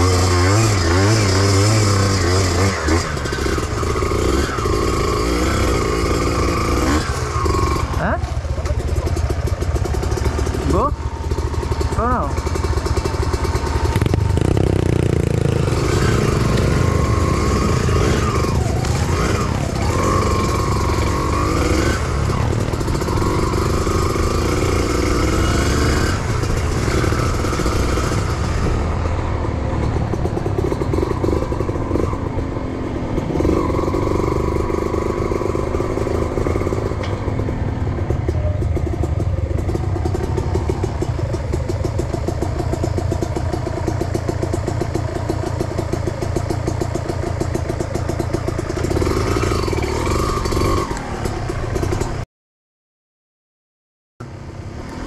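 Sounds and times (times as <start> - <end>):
motorcycle engine revving: 0.0 - 52.2.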